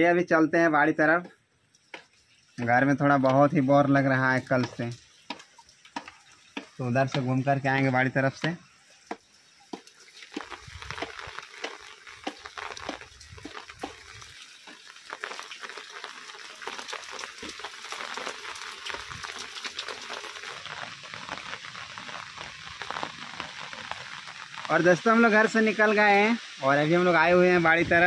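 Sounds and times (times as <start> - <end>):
rain ticking on an umbrella: 1.2 - 28.0
footsteps on muddy ground: 9.8 - 14.3.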